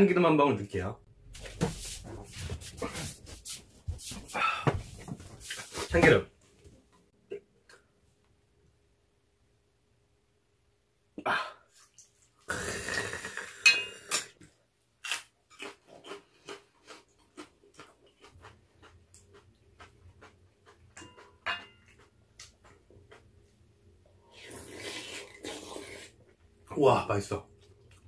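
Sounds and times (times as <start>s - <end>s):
noodles slurped: 24.3s - 26.2s.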